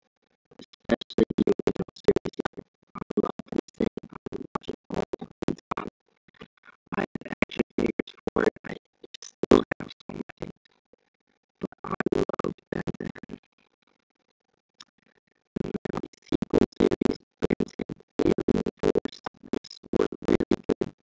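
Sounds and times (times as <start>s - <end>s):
choppy music with scratching: 15.6s - 20.9s.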